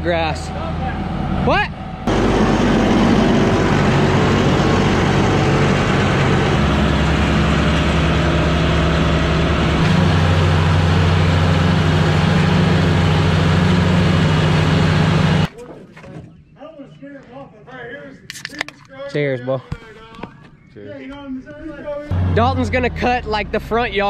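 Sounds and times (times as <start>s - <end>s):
tractor diesel engine under load: 0.0s - 15.5s, 22.1s - 24.0s
mower cutting grass: 2.1s - 15.5s.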